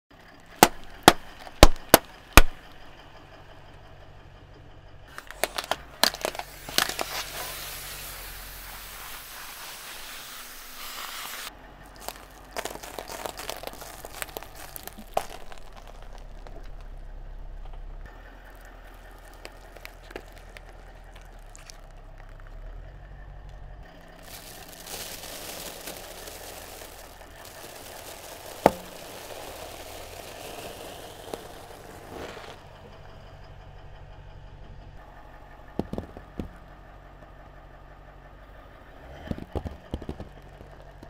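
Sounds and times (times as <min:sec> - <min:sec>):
cracking and crackling: 0:00.2 - 0:03.9, 0:05.1 - 0:08.0, 0:10.7 - 0:33.2, 0:39.2 - 0:41.0
objects popping under car tyre: 0:00.3 - 0:03.0, 0:05.1 - 0:33.0, 0:35.7 - 0:36.9, 0:39.0 - 0:41.0
aerosol can hissing: 0:06.4 - 0:11.5, 0:28.6 - 0:32.6.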